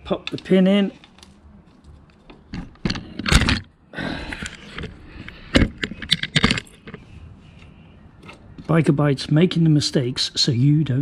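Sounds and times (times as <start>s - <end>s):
small metal parts clicking: 4.3s - 7.0s.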